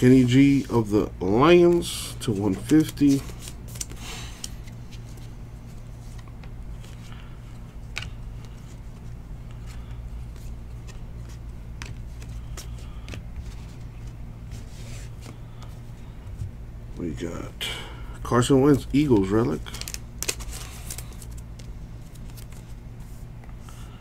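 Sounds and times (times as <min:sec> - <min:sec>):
steady low hum: 0:00.0 - 0:24.0
cards being shuffled: 0:01.5 - 0:15.8, 0:18.6 - 0:23.2.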